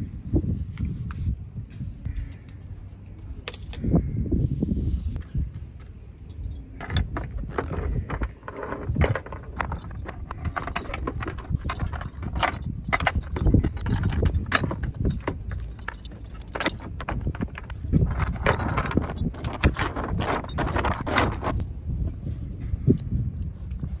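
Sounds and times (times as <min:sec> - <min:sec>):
anchor chain clanking: 0:06.3 - 0:21.6.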